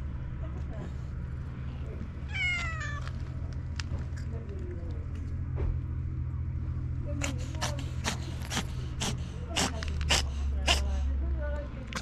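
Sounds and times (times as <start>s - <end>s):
steady low hum: 0.0s - 12.0s
cat sniffing: 7.2s - 11.2s.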